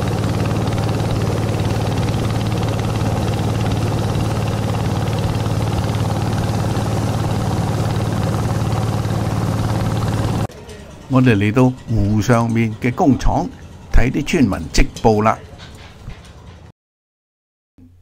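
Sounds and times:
motorboat engine running: 0.0s - 10.5s.

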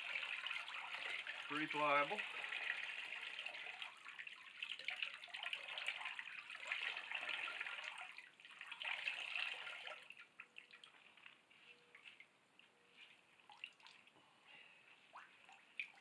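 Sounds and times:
liquid splashing into tub: 0.0s - 11.4s
water dripping: 0.0s - 12.7s, 13.3s - 14.2s, 15.0s - 16.0s.

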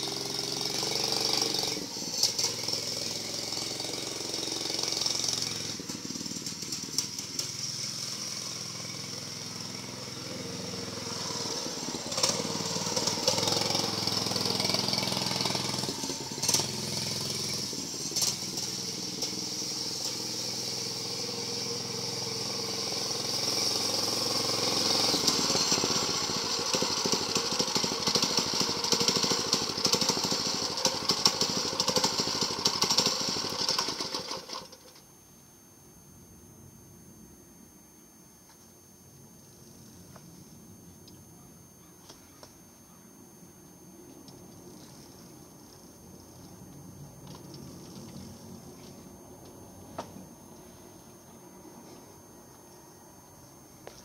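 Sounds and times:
small mini bike engine running: 0.0s - 35.0s, 47.2s - 49.1s.

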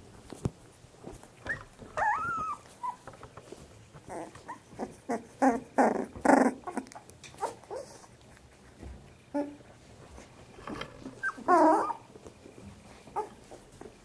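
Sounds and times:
puppies squeaking and whining: 1.4s - 8.7s, 9.3s - 13.9s
puppy growls: 1.8s - 3.0s, 4.0s - 8.2s, 9.3s - 9.7s, 11.0s - 12.2s.

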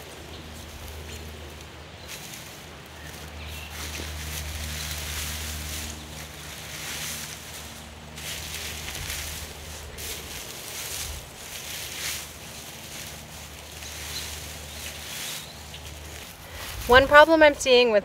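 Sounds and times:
straw mulch rustling: 0.0s - 18.0s.

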